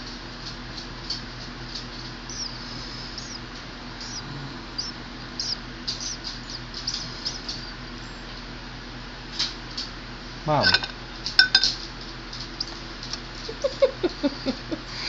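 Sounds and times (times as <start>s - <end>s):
nestling bird peeping: 1.8s - 8.4s, 12.4s - 12.9s.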